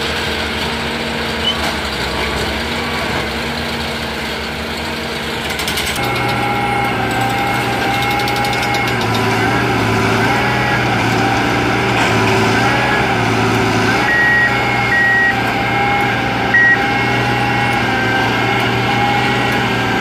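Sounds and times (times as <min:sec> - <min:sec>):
track machine engine running: 0:00.0 - 0:20.0
high-pitched alarm beeps: 0:13.9 - 0:15.5, 0:16.5 - 0:17.0.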